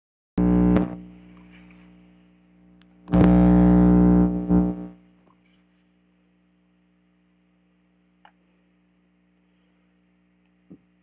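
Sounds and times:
distorted electric guitar chords: 0:00.4 - 0:01.2, 0:03.1 - 0:05.0.

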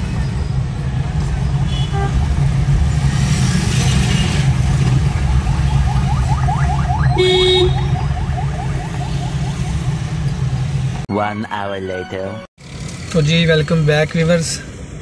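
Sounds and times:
car engine and road rumble: 0:00.0 - 0:11.1
car horn honk: 0:07.0 - 0:08.0.

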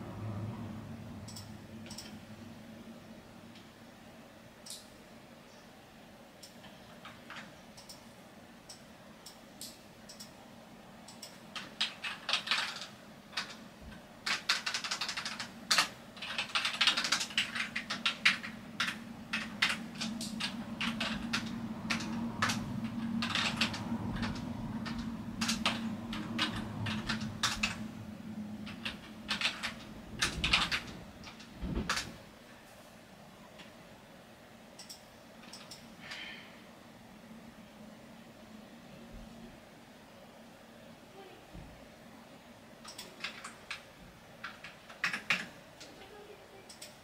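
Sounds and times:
low steady hum: 0:00.0 - 0:47.0
keyboard keys clicking: 0:11.1 - 0:13.6, 0:14.2 - 0:27.9, 0:28.6 - 0:32.1, 0:42.8 - 0:43.8, 0:44.4 - 0:45.9.

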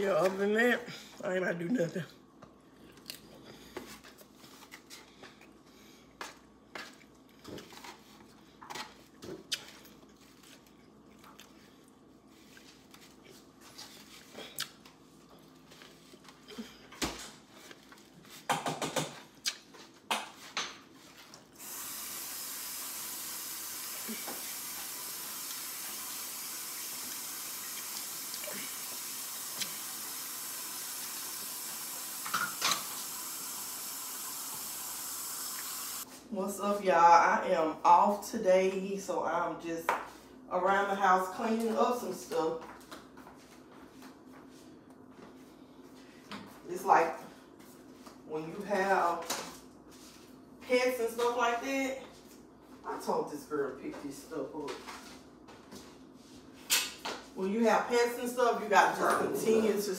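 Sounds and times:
water tap running: 0:21.6 - 0:36.0.

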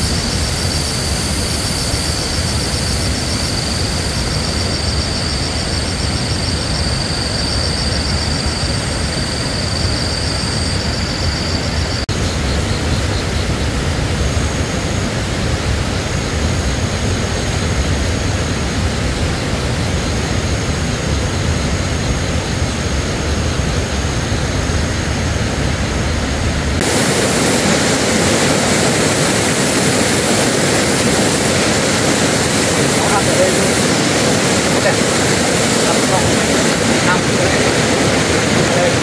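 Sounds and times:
steady rushing noise with rumble: 0:00.0 - 0:39.0.

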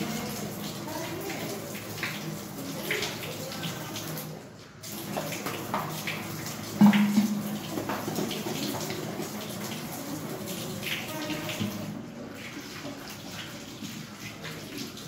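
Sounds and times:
plastic bottle rinsed by hand: 0:00.0 - 0:15.0
tap water splashing into sink: 0:00.0 - 0:15.0
loud knock: 0:06.8 - 0:07.5.

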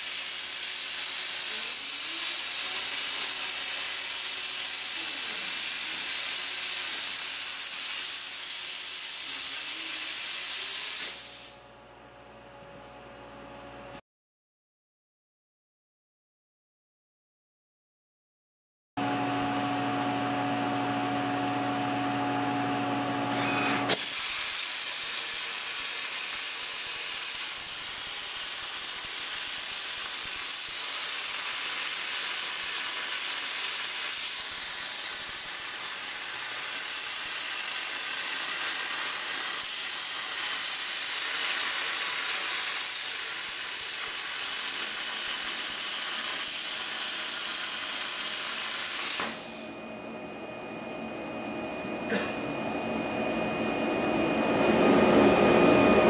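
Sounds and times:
plasma cutter hissing: 0:00.0 - 0:11.8, 0:23.9 - 0:49.8
steady machine hum: 0:11.5 - 0:14.0, 0:49.6 - 0:56.0.

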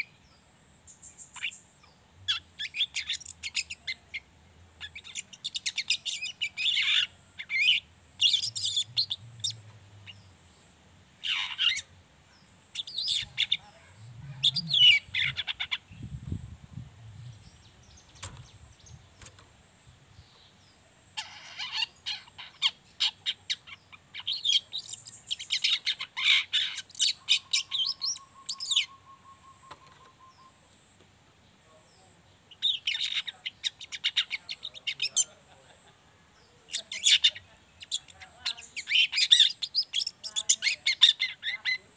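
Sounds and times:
bird chattering twitter: 0:00.9 - 0:01.6, 0:02.3 - 0:10.2, 0:11.2 - 0:11.9, 0:12.7 - 0:16.1, 0:21.2 - 0:30.7, 0:32.5 - 0:35.5, 0:36.7 - 0:41.9.

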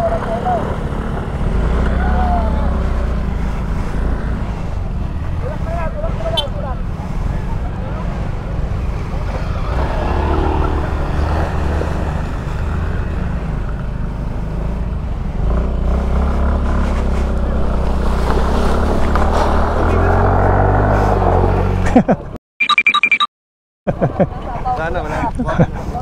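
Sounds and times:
tyre and wind noise: 0:15.4 - 0:22.4.

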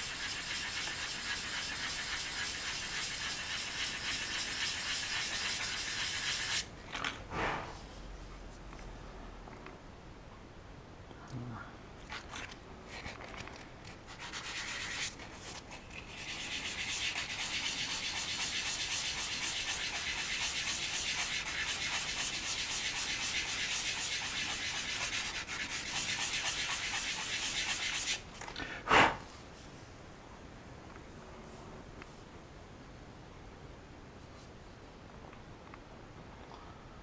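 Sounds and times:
sandpaper rasping on resin: 0:00.0 - 0:06.7, 0:14.1 - 0:28.2.

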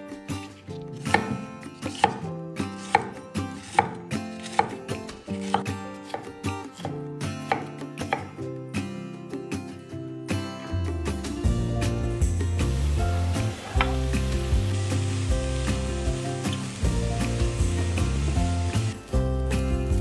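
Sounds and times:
soft background music: 0:00.0 - 0:20.0
knife chopping on wooden board: 0:01.0 - 0:02.2, 0:02.8 - 0:08.3, 0:13.5 - 0:14.1.

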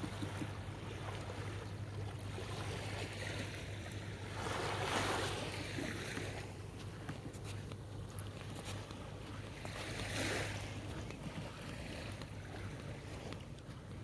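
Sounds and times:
small waves lapping on beach: 0:00.0 - 0:14.0.

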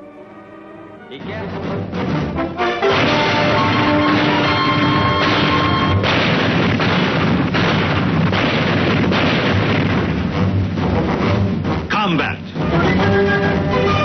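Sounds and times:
held musical chord: 0:00.0 - 0:02.8
explosions and artillery fire: 0:02.8 - 0:12.0.

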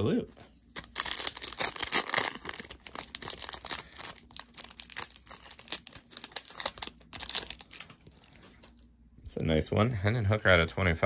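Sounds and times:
foil wrapper tearing and crinkling: 0:00.8 - 0:08.8.

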